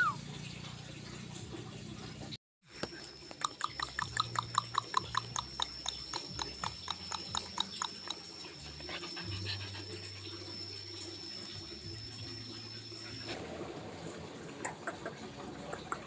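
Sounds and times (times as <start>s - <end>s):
dog panting: 4.0s - 11.3s.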